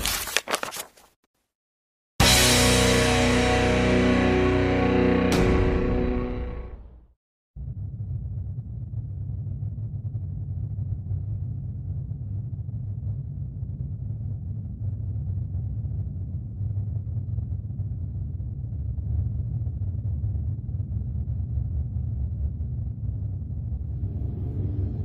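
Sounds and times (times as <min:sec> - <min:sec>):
deep rumble: 0:07.6 - 0:25.0.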